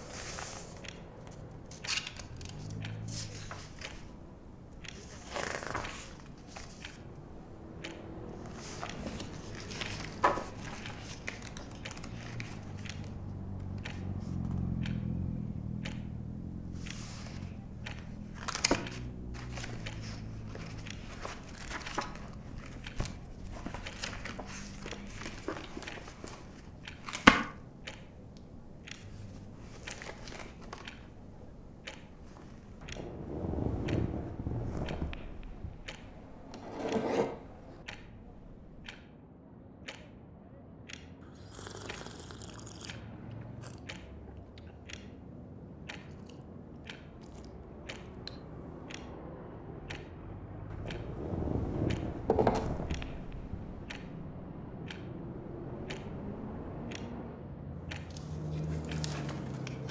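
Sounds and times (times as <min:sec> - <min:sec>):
low street traffic rumble: 0:00.0 - 0:59.9
small knocks and handling noises: 0:15.8 - 0:33.0.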